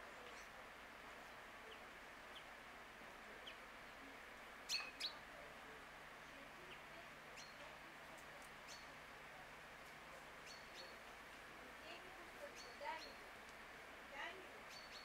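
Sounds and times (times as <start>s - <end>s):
faint steady hiss: 0.0s - 15.0s
small birds chirping: 1.6s - 2.6s, 3.3s - 5.3s, 6.6s - 9.0s, 10.2s - 13.4s, 14.2s - 15.0s.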